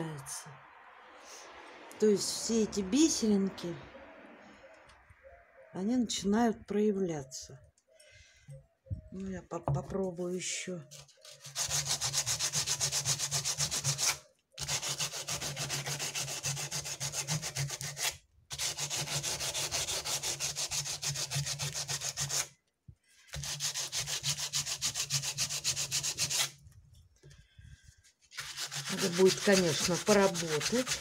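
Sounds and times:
sandpaper rubbing on cement: 10.9s - 22.5s, 23.3s - 26.6s, 28.3s - 31.0s.

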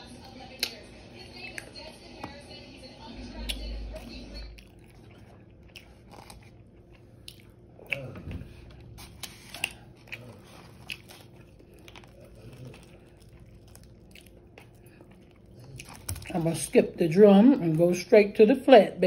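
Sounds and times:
person chewing crispy food: 4.6s - 16.4s.

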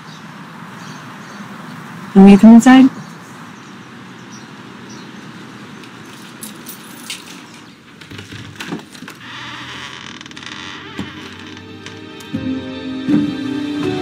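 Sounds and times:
door latch and handle rattling: 6.1s - 9.2s
soft background music: 11.1s - 14.0s.

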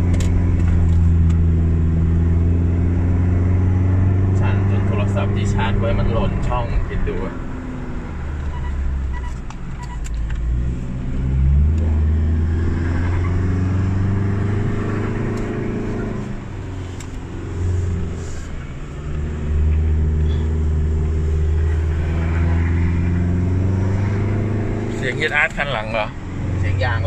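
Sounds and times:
car engine pulling uphill: 0.0s - 27.0s.

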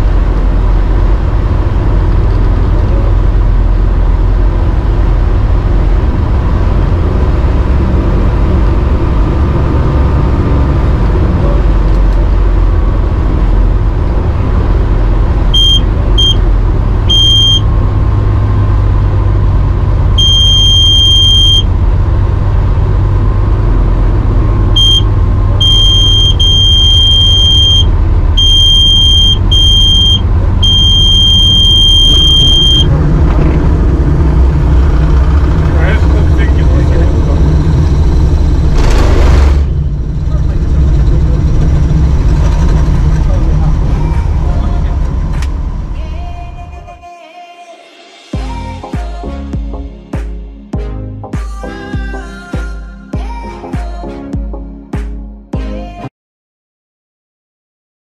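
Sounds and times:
aircraft engine and propeller drone: 0.0s - 25.7s, 29.4s - 46.0s.

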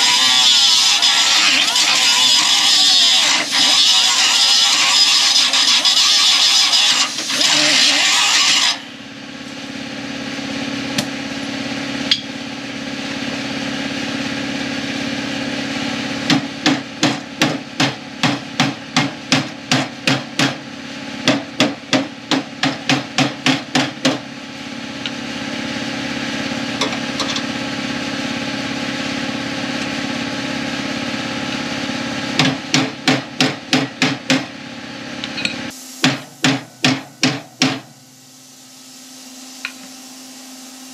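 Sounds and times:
cut-off wheel grinding steel: 0.0s - 9.0s
steady low hum: 20.4s - 40.9s.

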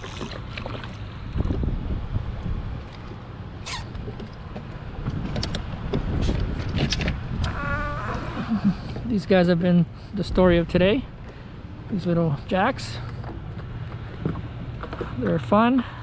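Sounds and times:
water splashing: 0.0s - 1.8s
wind buffeting microphone: 0.0s - 9.5s, 10.1s - 15.4s.

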